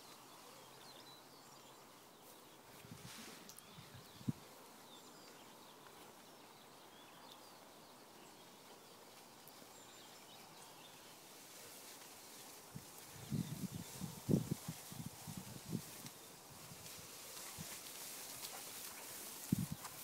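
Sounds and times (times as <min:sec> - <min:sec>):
distant birds chirping: 0:00.0 - 0:15.0
soft steady hiss: 0:00.0 - 0:20.0.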